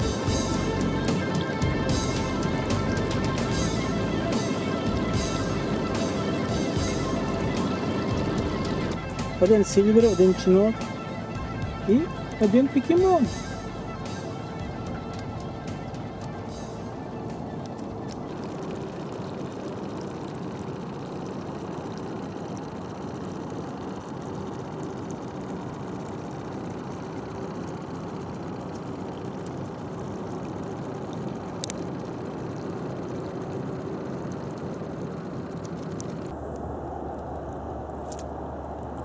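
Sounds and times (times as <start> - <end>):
boat engine humming: 0.0 - 39.0
steady low rumble: 0.0 - 39.0
water rushing: 0.0 - 39.0.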